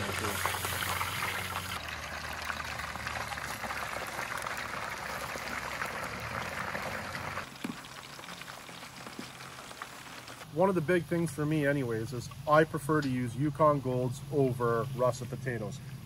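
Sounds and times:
fries sizzling in hot oil: 0.0s - 10.4s.

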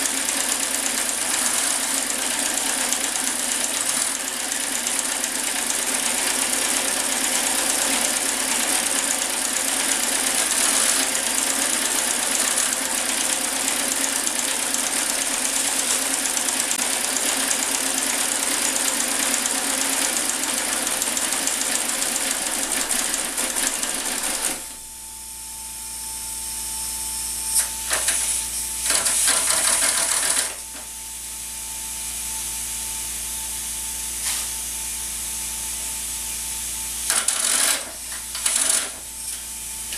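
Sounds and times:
model steam shovel gears clattering: 20.2s - 24.6s, 28.8s - 30.6s, 37.1s - 39.4s.

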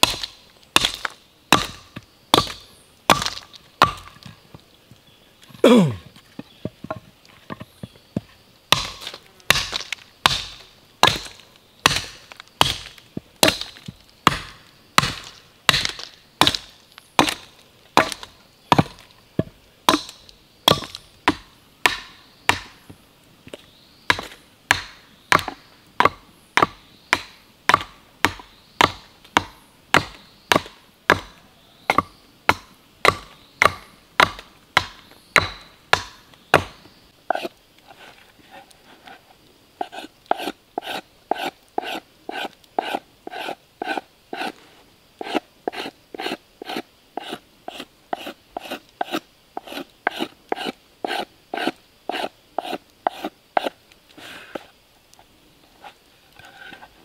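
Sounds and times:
hatchet chopping wood: 0.0s - 4.3s, 8.7s - 22.8s, 24.1s - 37.5s.

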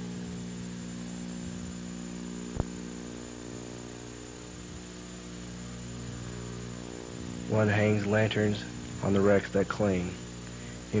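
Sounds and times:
electrical mains hum: 0.0s - 11.0s
thin high whine: 0.0s - 11.0s.

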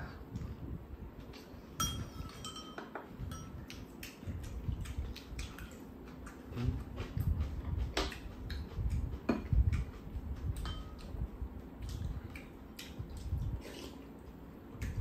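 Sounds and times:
spoon tapping ceramic bowl: 1.8s - 3.5s
chewing: 3.6s - 15.0s.

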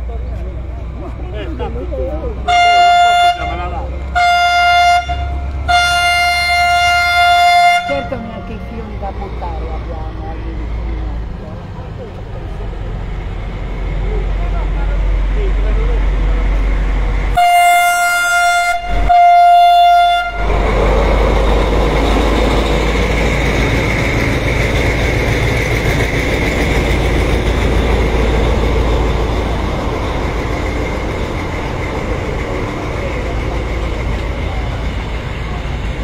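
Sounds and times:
train wheels rumbling on rails: 0.0s - 36.0s
diesel locomotive horn: 2.4s - 8.9s, 17.3s - 21.0s.

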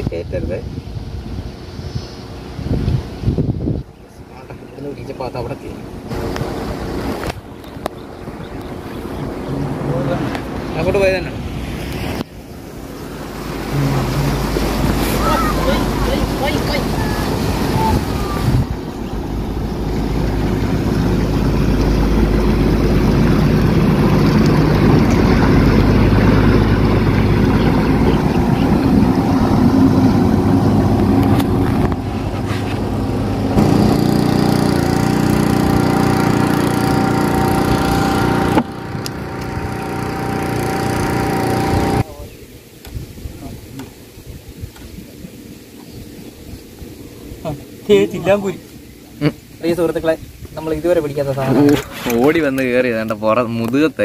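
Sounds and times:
boat engine running: 1.0s - 42.3s.

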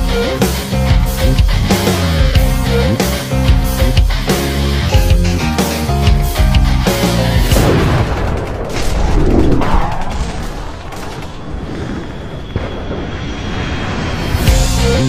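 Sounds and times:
heavy metal guitar music: 0.0s - 9.0s, 14.4s - 15.0s
rifle shot booms: 7.5s - 11.5s
low rumble: 7.6s - 15.0s.

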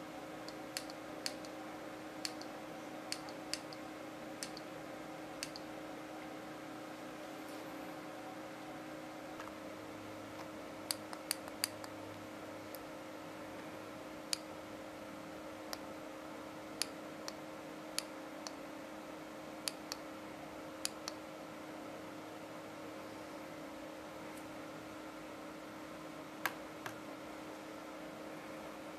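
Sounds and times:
low electrical hum: 0.0s - 28.9s
laser pointer button clicking: 4.4s - 4.7s.

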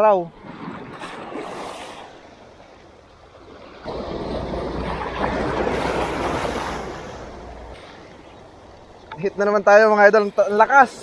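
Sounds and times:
wind rumbling on microphone: 0.0s - 11.0s
small waves washing over pebbles: 0.3s - 9.1s.

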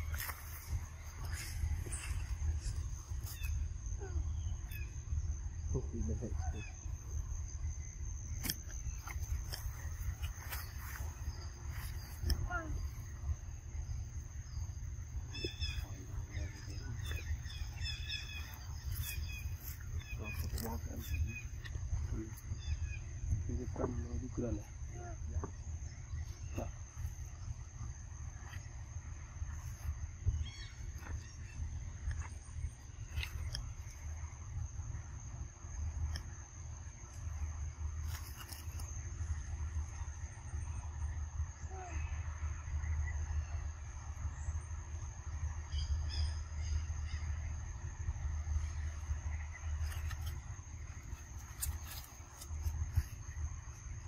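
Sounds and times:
thin high insect whine: 0.0s - 54.0s
high chirping calls: 7.8s - 23.7s.

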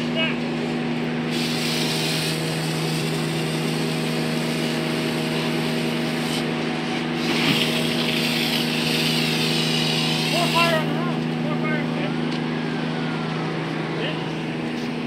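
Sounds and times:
engine running steadily: 0.0s - 15.0s
water spraying from fire hose: 1.3s - 6.5s, 7.1s - 10.9s.

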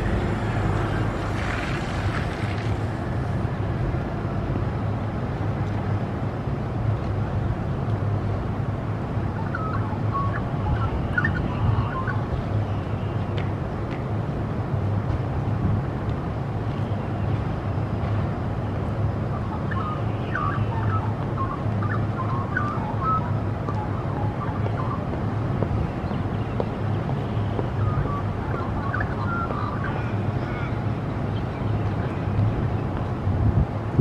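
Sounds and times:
heavy road traffic rumble: 0.0s - 34.0s
bird chirps: 9.4s - 13.1s, 19.4s - 25.0s, 25.9s - 30.8s.

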